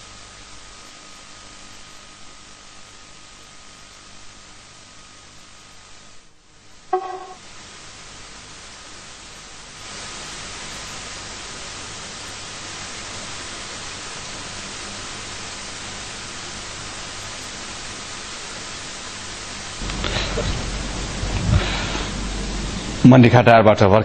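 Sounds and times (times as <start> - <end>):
static hiss: 0.0 - 23.6.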